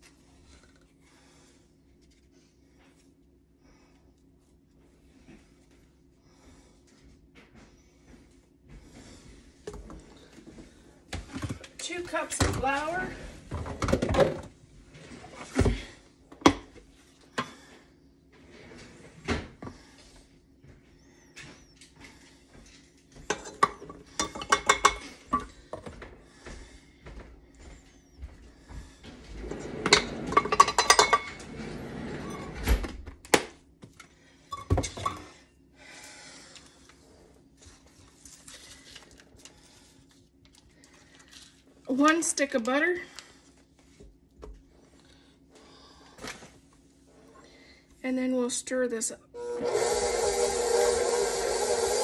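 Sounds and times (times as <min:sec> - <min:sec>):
dishes and utensils clattering: 0:23.2 - 0:25.9, 0:29.6 - 0:32.5, 0:34.5 - 0:35.4.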